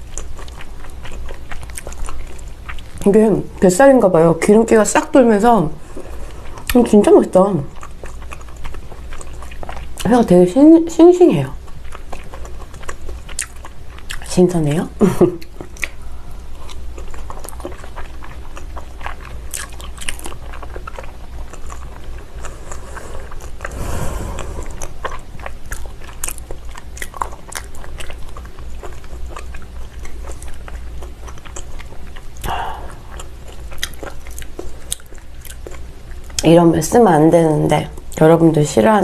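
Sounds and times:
wet chewing mouth clicks: 0:00.0 - 0:03.2, 0:11.7 - 0:14.3, 0:15.4 - 0:16.0, 0:16.6 - 0:36.5
brief rush of noise: 0:23.7 - 0:24.9.

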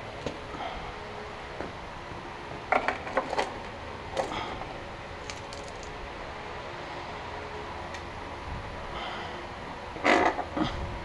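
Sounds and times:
metal parts clinking: 0:05.2 - 0:06.0.

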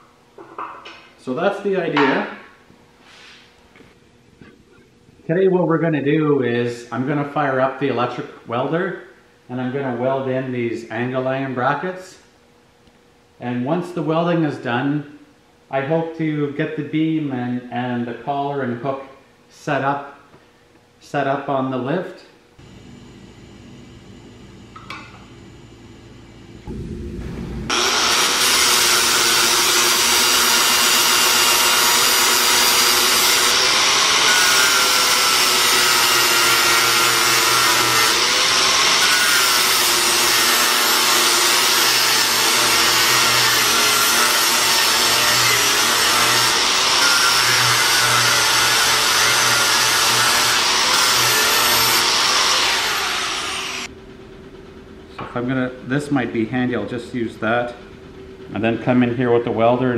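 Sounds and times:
angle grinder grinding steel: 0:27.7 - 0:53.9.

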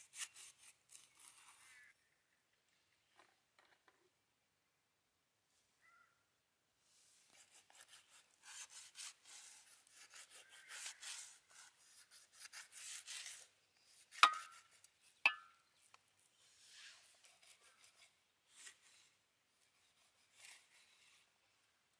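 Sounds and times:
knife scraping fish scales: 0:00.0 - 0:01.8, 0:07.3 - 0:15.5, 0:16.7 - 0:19.1, 0:19.8 - 0:21.2
sharp taps: 0:14.2 - 0:14.6.

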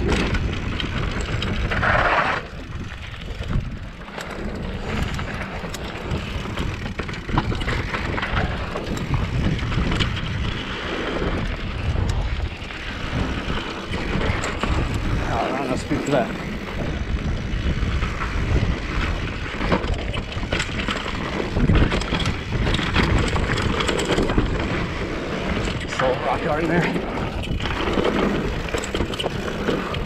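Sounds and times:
bike rattling clicks: 0:00.0 - 0:30.0
tyres rolling on dirt and rock: 0:00.0 - 0:30.0
wind buffeting microphone: 0:00.0 - 0:30.0.

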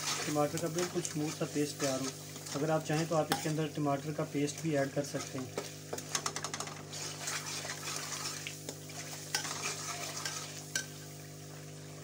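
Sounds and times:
metal ladle scraping a pan: 0:00.0 - 0:03.8, 0:04.5 - 0:06.1, 0:06.8 - 0:11.0
light sizzle: 0:00.0 - 0:12.0.

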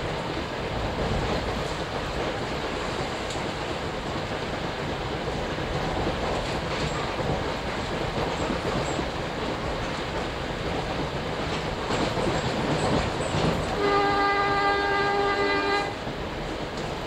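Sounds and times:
train running noise from inside: 0:00.0 - 0:17.0
train horn blast: 0:13.7 - 0:16.1.

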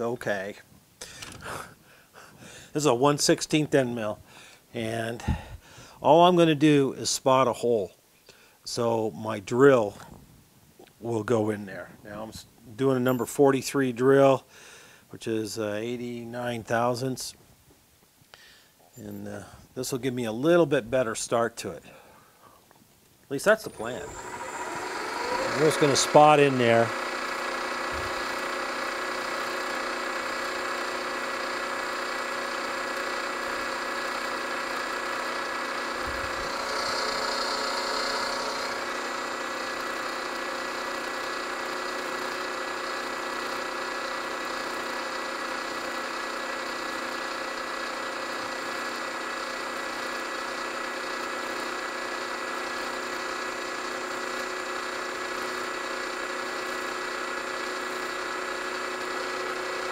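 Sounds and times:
milling machine cutting metal: 0:23.7 - 0:46.2.

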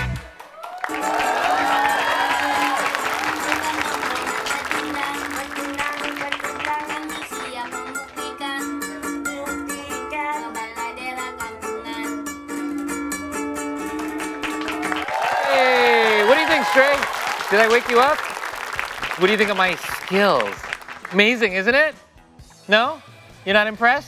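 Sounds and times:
ukulele strumming chords: 0:03.3 - 0:15.0.

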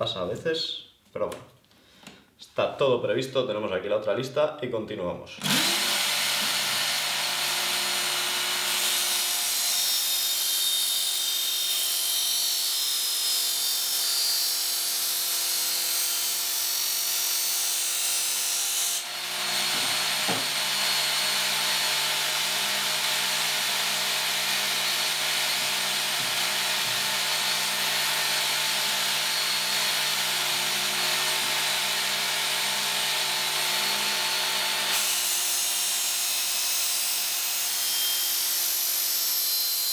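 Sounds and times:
belt sharpener running: 0:05.4 - 0:10.8, 0:19.0 - 0:39.9.

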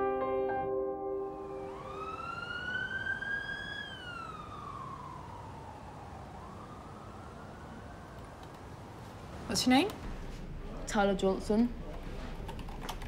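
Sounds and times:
piano music: 0:00.0 - 0:01.9
background noise: 0:00.0 - 0:13.0
emergency siren wailing: 0:01.2 - 0:08.9.

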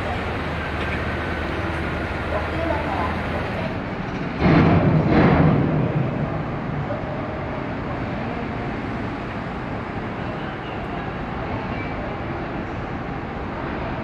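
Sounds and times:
ferry port rumble and hum: 0:00.0 - 0:14.0.

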